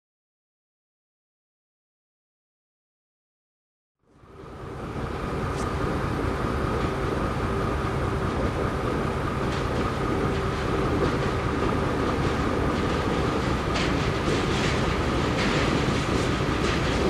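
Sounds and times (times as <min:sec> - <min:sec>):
diesel locomotive droning: 0:04.1 - 0:17.0.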